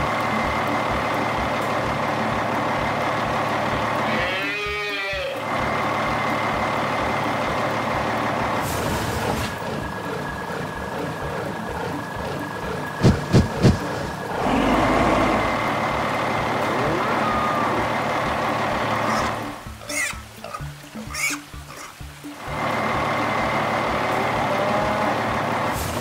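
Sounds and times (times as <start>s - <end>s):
truck engine running: 0.0s - 26.0s
rising and falling pitched call: 16.6s - 18.2s.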